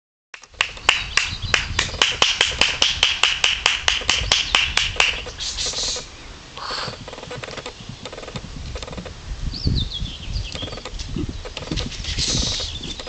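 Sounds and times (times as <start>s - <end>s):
short hiss: 5.3s - 7.0s, 12.1s - 12.8s.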